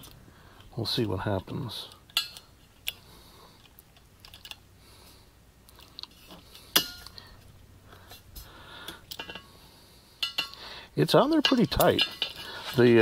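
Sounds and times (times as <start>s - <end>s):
small metal clicks: 1.8s - 4.6s, 8.8s - 9.5s, 10.2s - 12.9s.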